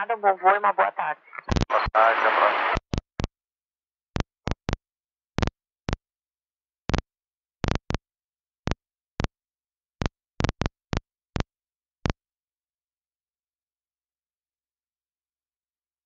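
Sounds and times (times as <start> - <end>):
radio static bursts: 0.0 - 2.9.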